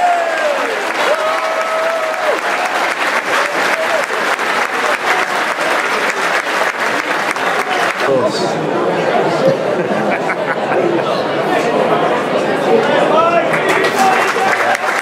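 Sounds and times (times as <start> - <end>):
crowd applauding and cheering: 0.0 - 8.2, 13.1 - 15.0.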